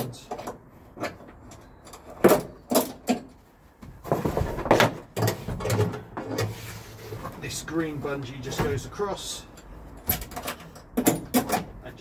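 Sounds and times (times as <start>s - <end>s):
plastic tanks rattling: 0.0s - 7.6s.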